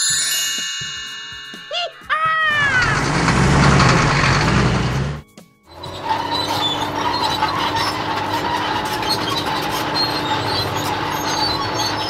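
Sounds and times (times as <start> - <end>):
high squeaks: 2.4 - 12.0
crane engine and tracks: 2.5 - 12.0.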